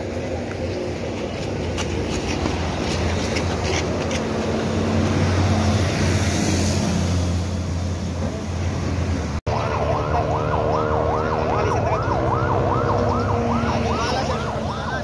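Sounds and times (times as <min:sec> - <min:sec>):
traffic noise: 0:00.0 - 0:15.0
wailing emergency siren: 0:09.5 - 0:15.0.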